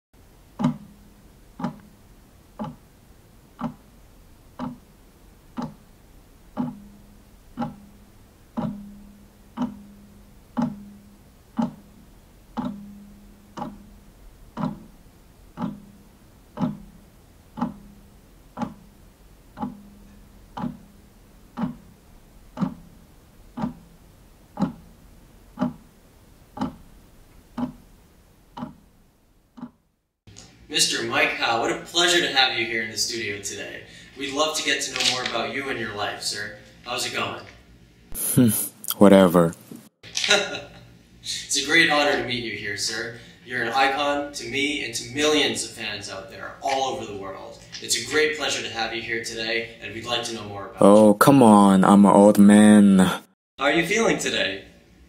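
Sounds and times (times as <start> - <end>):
clock ticking: 0.2 - 25.9, 26.6 - 27.0, 27.6 - 27.9, 28.5 - 28.9, 29.6 - 29.8.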